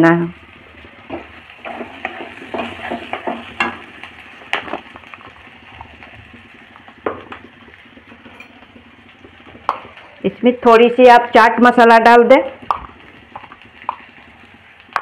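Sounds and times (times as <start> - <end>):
potatoes sizzling in oil: 0.0 - 15.0
wooden spatula scraping a pan: 1.0 - 3.9.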